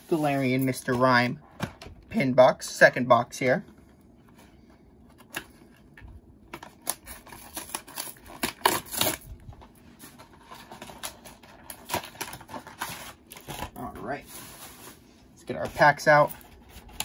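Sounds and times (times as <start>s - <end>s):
packaging rustling: 5.1s - 15.1s.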